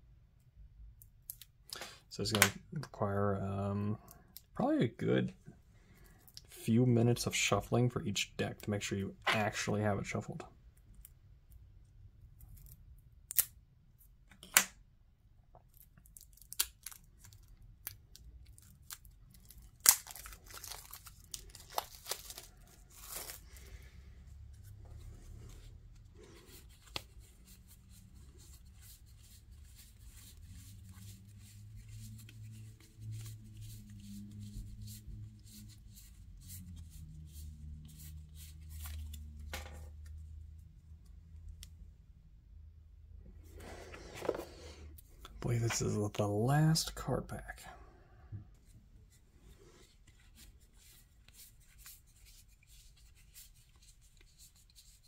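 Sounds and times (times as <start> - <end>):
plastic wrapping crackling and tearing: 15.7 - 23.8
cards rustling: 15.8 - 40.2, 43.5 - 45.9.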